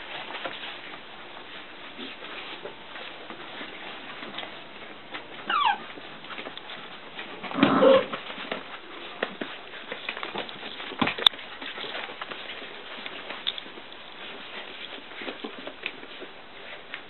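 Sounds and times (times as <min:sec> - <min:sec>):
paws scuffling clicks: 0:00.0 - 0:17.0
puppies whimpering and yelping: 0:05.4 - 0:06.0.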